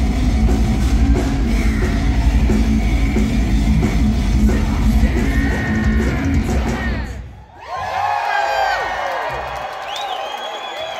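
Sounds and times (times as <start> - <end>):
heavy metal band playing live: 0.0 - 7.3.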